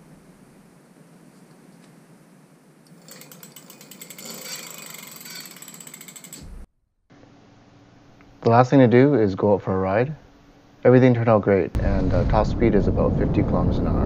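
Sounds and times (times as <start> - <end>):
freewheel ratchet clicking: 2.9 - 6.7
hub motor whir: 2.9 - 6.7.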